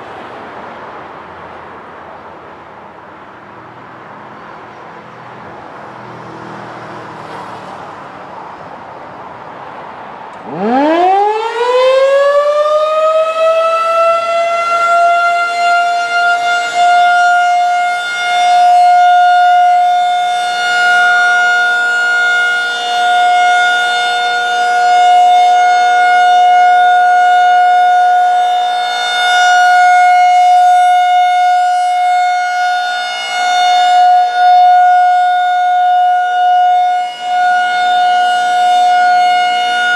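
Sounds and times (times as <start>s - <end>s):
rotating warning siren: 10.4s - 39.9s.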